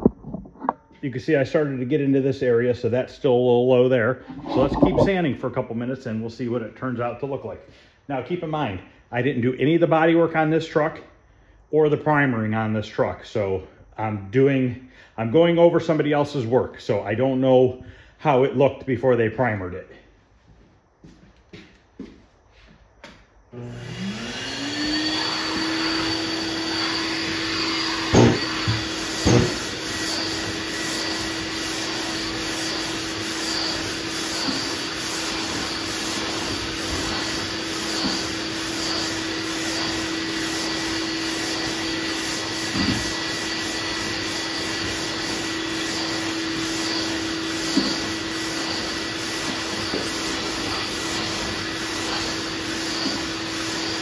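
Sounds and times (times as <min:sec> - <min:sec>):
dust extractor humming: 0:23.5 - 0:54.0.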